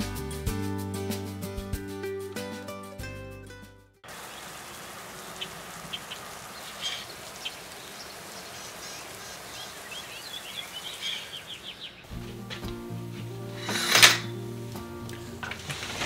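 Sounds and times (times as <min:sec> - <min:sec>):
steady rain: 0:04.0 - 0:12.6, 0:14.6 - 0:16.0
birds chirping: 0:04.0 - 0:16.0.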